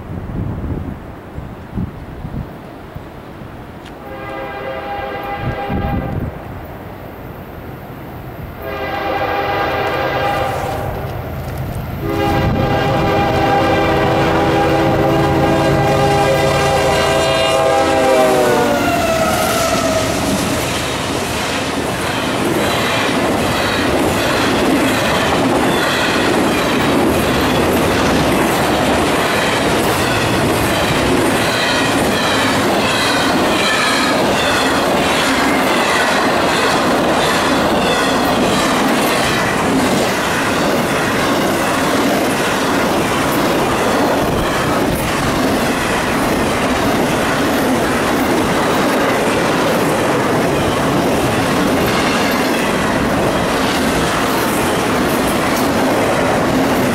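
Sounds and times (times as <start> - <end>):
locomotive air horn blasts: 4.0 - 6.2, 8.6 - 11.0, 12.0 - 20.3.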